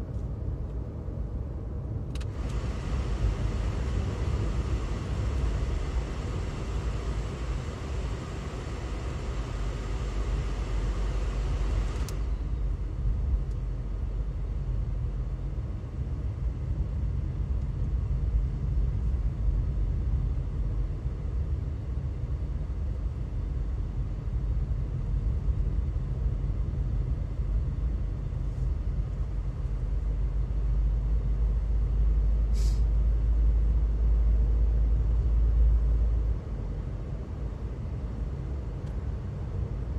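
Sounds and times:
car road and engine rumble: 0.0s - 39.9s
faint click: 2.1s - 2.6s, 12.0s - 12.2s.

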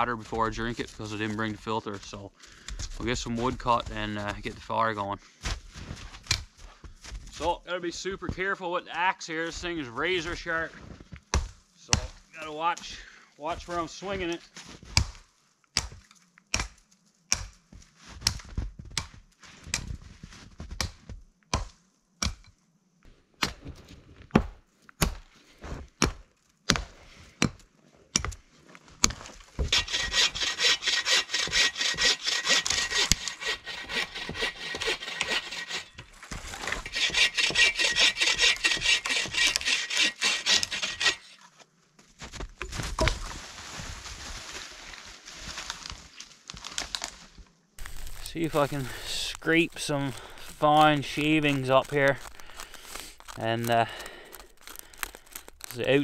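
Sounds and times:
axe chopping wood: 15.8s - 17.6s, 20.8s - 22.5s, 24.3s - 25.3s, 26.0s - 28.4s
saw cutting through wood: 29.6s - 41.4s, 47.8s - 56.0s.

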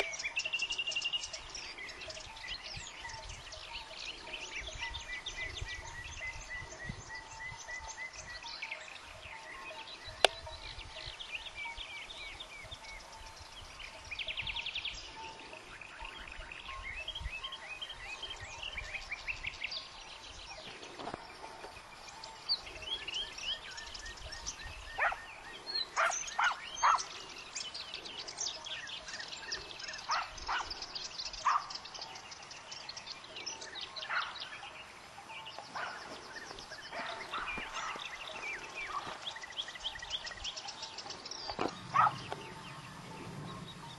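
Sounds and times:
songbirds chirping and trilling: 0.0s - 43.9s
hounds barking: 25.0s - 27.4s, 29.9s - 31.8s, 33.9s - 34.7s, 35.6s - 39.2s, 41.7s - 43.4s.

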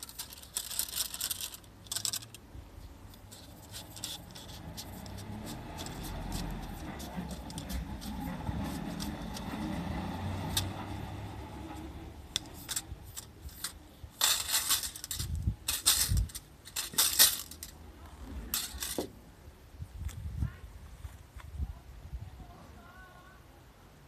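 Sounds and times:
metal rake scraping grass and dirt: 0.0s - 19.1s.

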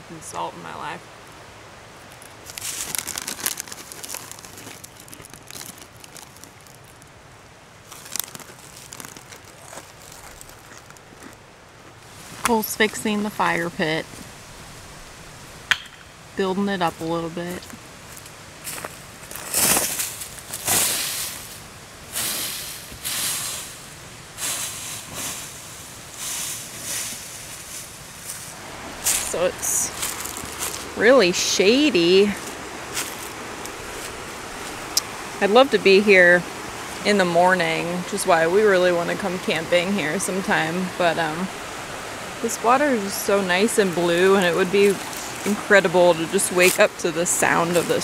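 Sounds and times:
footsteps on dry leaves: 2.0s - 12.5s, 17.0s - 31.1s, 31.7s - 35.4s, 44.1s - 45.6s
snack bag crinkling: 2.1s - 7.1s, 7.8s - 11.4s, 29.1s - 30.9s.

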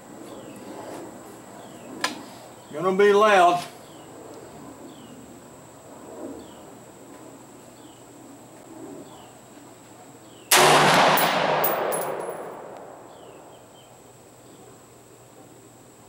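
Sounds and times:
rifle shot echoing: 10.5s - 13.6s.

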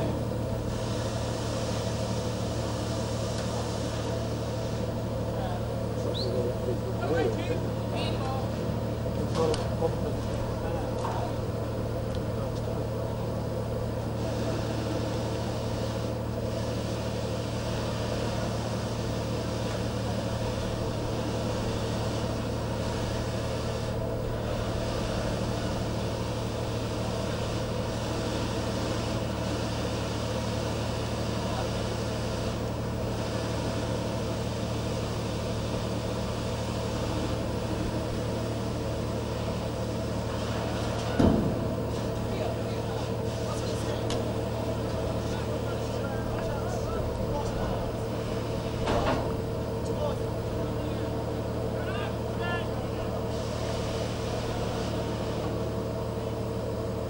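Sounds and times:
ship engine drone: 0.0s - 57.0s
brief thump: 41.2s - 41.7s.

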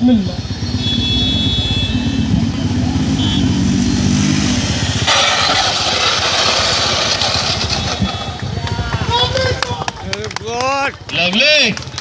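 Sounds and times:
motorcycle sliding on asphalt: 4.2s - 9.0s
motorcycle engine running: 5.7s - 10.1s.

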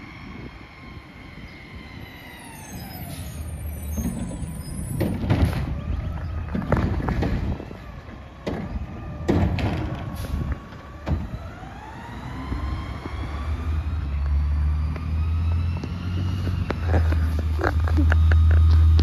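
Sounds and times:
garbage truck engine accelerating: 0.0s - 19.0s
rising whine: 11.2s - 19.0s.

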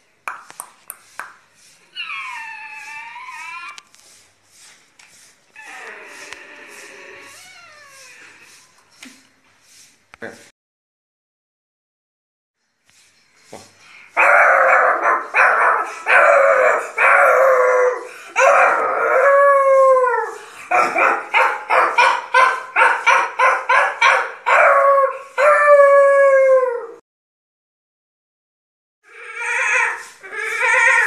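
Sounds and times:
boy imitating dog barks and howls: 14.2s - 27.0s, 29.4s - 31.0s.

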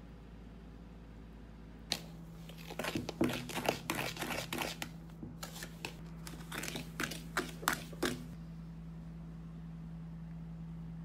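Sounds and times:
gritty powder scraping in bowl: 2.4s - 8.3s.

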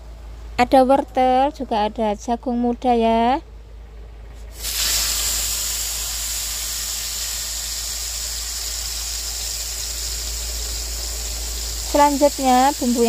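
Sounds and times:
spice paste sizzling in oil: 4.6s - 13.0s.

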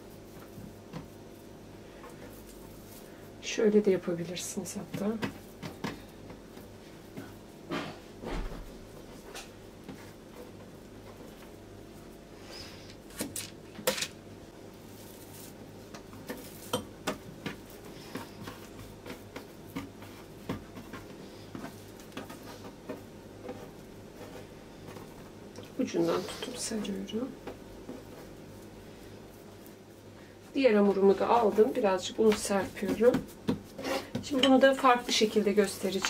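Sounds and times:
faint steady hum: 0.0s - 36.0s
hands tapping dough on wooden board: 32.2s - 34.6s.

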